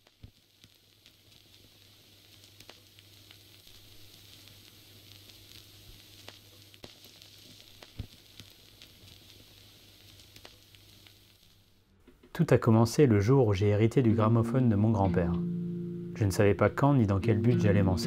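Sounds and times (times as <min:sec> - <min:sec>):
vinyl record surface hiss: 0:00.0 - 0:18.0
vinyl clicks and pops: 0:02.3 - 0:11.4
low hum: 0:14.1 - 0:18.0.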